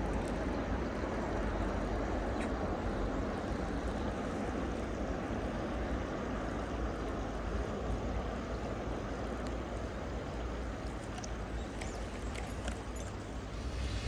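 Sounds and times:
low rumble: 13.4s - 14.0s.

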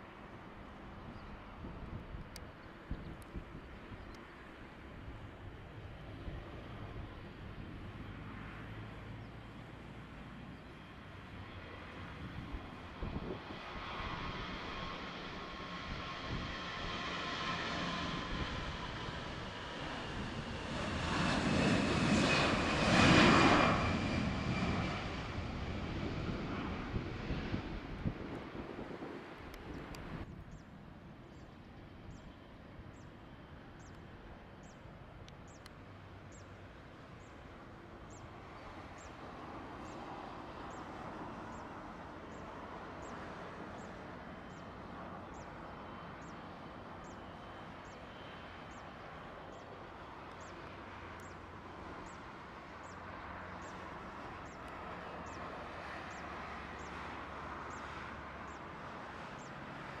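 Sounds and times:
distant jet engine whine: 0.0s - 60.0s.

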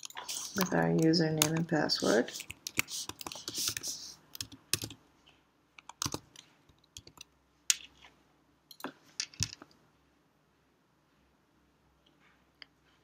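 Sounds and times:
computer keyboard keystrokes: 0.0s - 1.7s, 2.4s - 5.0s, 5.8s - 7.3s.

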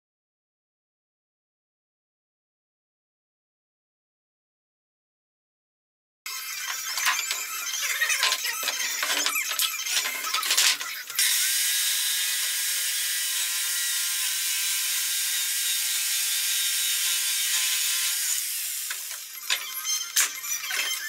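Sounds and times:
electric jigsaw sawing wood: 6.3s - 21.0s.

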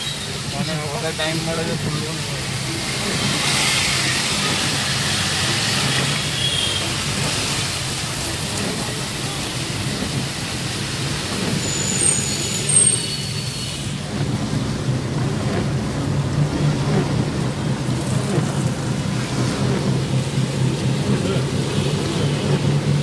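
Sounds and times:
rain and wet road noise: 0.0s - 23.0s
short high-pitched squeaks: 11.4s - 14.0s
low engine hum: 14.0s - 23.0s.

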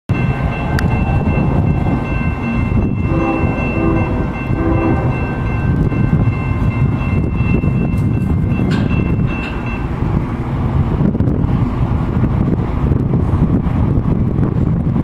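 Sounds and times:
steady low rumble: 0.1s - 15.0s
locomotive horn blasts: 2.4s - 5.6s.

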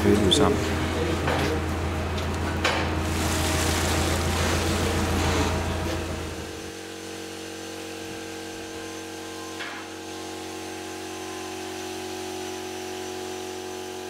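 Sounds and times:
workshop machine humming: 0.0s - 14.0s.

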